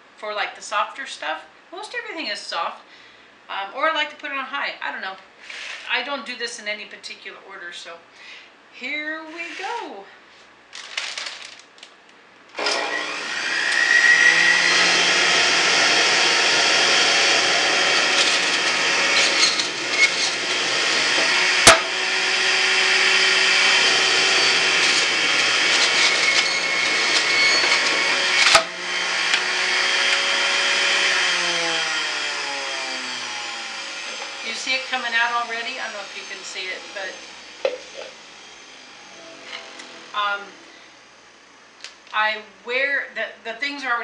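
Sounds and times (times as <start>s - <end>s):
juicer motor whining: 12.5s - 40.2s.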